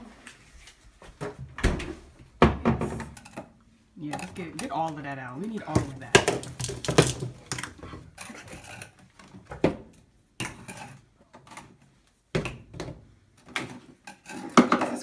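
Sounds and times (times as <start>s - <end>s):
jars clicking and knocking: 2.7s - 9.0s, 13.5s - 15.0s.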